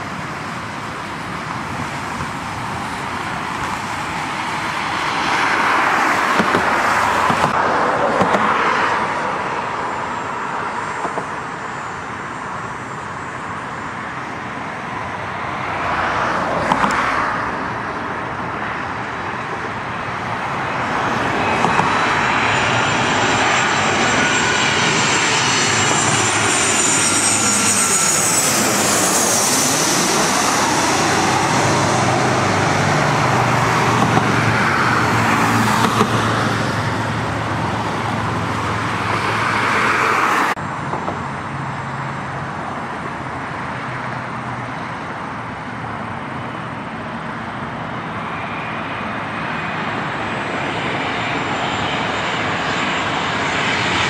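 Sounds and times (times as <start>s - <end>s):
jet airliner engine noise: 0.0s - 54.0s.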